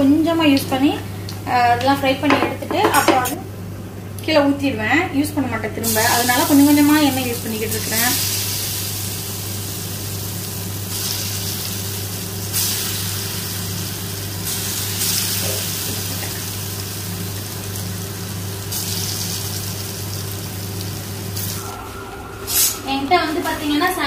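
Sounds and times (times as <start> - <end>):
batter sizzling in hot oil: 5.8 - 21.6.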